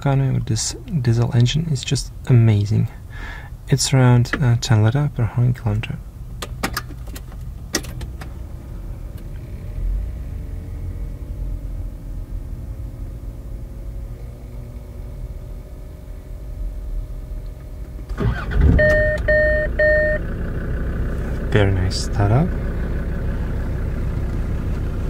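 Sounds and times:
diesel engine idling: 0:07.4 - 0:25.0.

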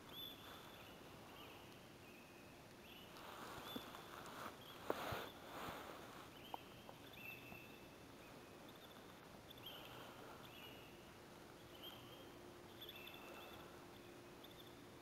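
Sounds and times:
faint high squeaks: 0:03.4 - 0:06.6.

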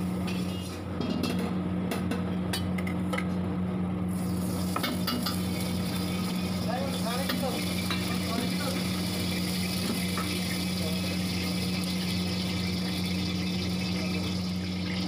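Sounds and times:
oil sizzling in wok: 0:00.0 - 0:00.9, 0:04.1 - 0:15.0
steady low hum: 0:00.0 - 0:15.0.

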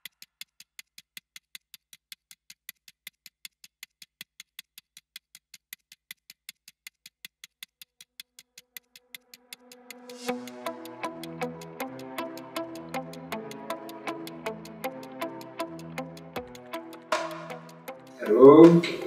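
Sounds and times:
quick ticking: 0:00.0 - 0:19.0
held low music tone: 0:09.5 - 0:19.0.

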